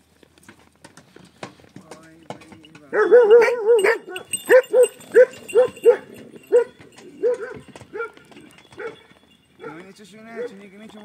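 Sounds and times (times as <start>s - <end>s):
dog barking: 2.9s - 10.6s.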